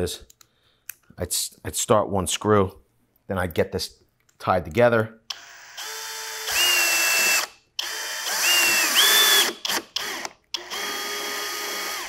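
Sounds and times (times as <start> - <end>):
drill driving screw into wood: 5.3 - 12.0.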